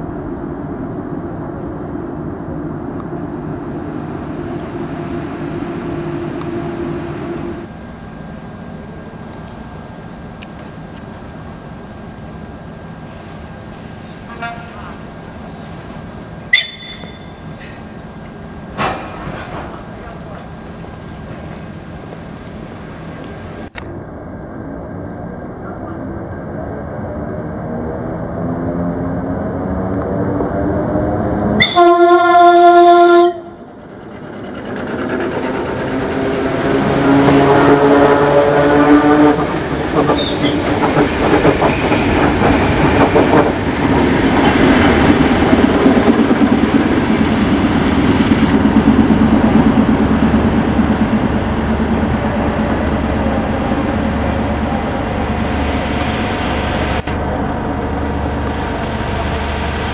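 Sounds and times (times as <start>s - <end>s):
train horn: 14.2s - 15.1s, 31.6s - 33.8s
train wheels clattering over rail joints: 18.7s - 20.5s, 39.4s - 51.3s.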